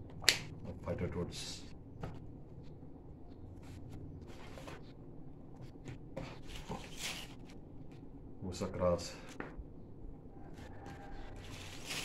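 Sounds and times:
paper rustling and sliding: 0:06.3 - 0:07.6, 0:11.4 - 0:12.0.

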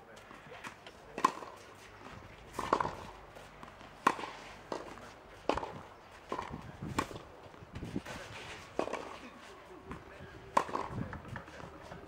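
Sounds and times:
shoe scuffs on clay court: 0:00.1 - 0:12.0
racket hitting tennis ball: 0:00.5 - 0:12.0.

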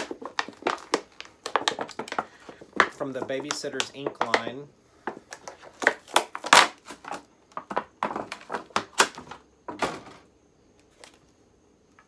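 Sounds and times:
plastic packaging crinkling: 0:00.0 - 0:04.4, 0:05.3 - 0:09.3.

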